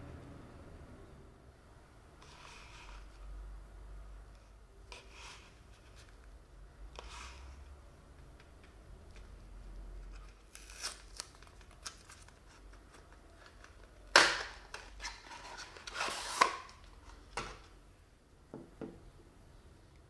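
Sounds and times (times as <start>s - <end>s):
cardboard ripping: 10.5s - 12.2s.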